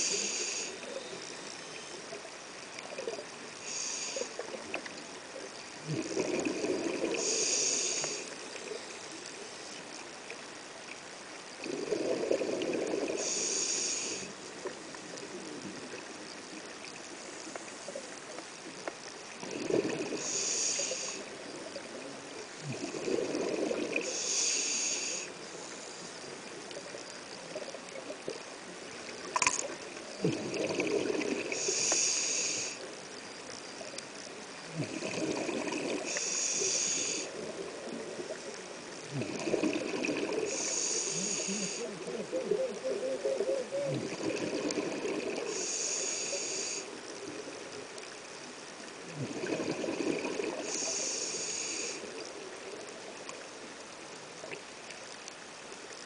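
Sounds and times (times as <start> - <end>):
regulator breathing hiss: 0.0 - 1.0, 3.6 - 4.6, 7.0 - 8.8, 13.0 - 14.4, 20.0 - 21.4, 24.0 - 26.4, 31.5 - 33.0, 36.0 - 38.0, 40.3 - 42.2, 45.3 - 47.2, 50.6 - 52.3
exhaust bubbles burbling: 5.8 - 7.3, 11.6 - 13.2, 19.4 - 20.3, 22.6 - 24.1, 29.2 - 31.6, 34.7 - 36.2, 39.0 - 40.6, 43.6 - 45.6, 49.0 - 50.8.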